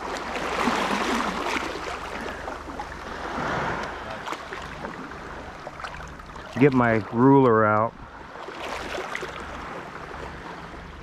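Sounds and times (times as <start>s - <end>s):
water splashing around rocks: 0.0s - 7.5s, 8.4s - 9.5s.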